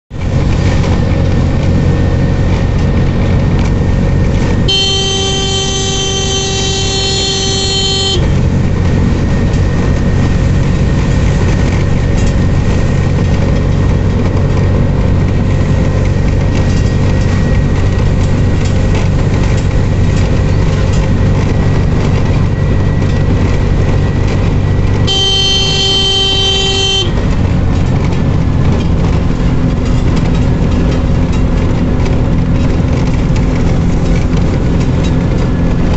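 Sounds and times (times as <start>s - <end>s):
three-wheeler engine running: 0.1s - 35.9s
vehicle horn: 4.6s - 8.5s, 24.9s - 27.4s.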